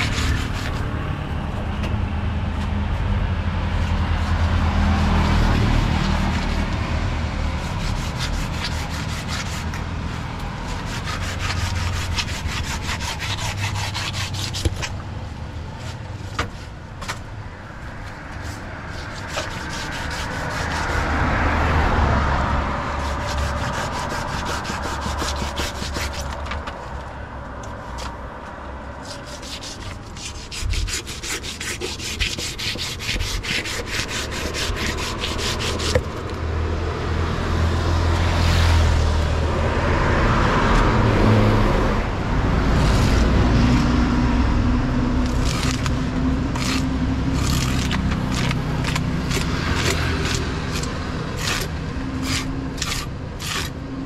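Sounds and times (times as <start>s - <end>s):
knife scraping fish scales: 0.0s - 0.8s, 7.6s - 9.8s, 10.6s - 15.0s, 18.3s - 21.1s, 23.0s - 26.5s, 29.0s - 36.2s, 45.2s - 53.8s.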